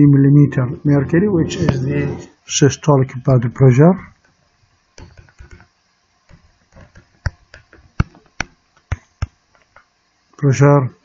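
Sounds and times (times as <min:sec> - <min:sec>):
stylus tapping on tablet screen: 0:06.3 - 0:09.4.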